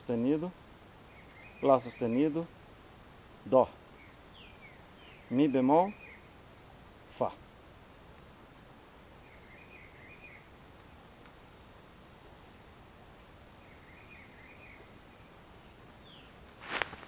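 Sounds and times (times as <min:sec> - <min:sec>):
cicadas droning: 0:00.0 - 0:17.0.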